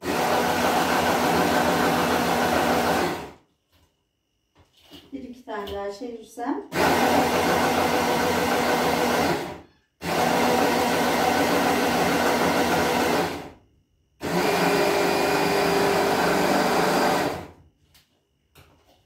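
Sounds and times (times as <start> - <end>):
electric chopper motor grinding sugar: 0.0 - 3.4, 6.7 - 13.6, 14.2 - 17.6.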